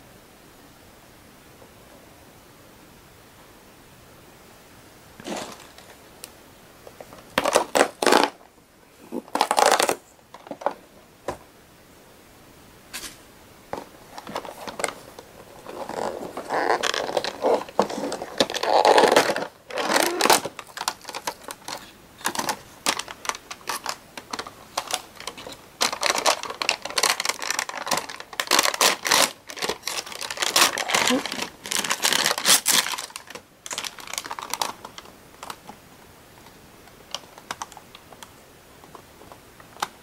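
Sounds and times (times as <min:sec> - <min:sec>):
cardboard box rustling: 0:05.2 - 0:06.0, 0:13.8 - 0:34.7
foil pouch crinkling: 0:05.2 - 0:06.0, 0:07.0 - 0:08.4, 0:09.1 - 0:10.8, 0:14.0 - 0:35.8.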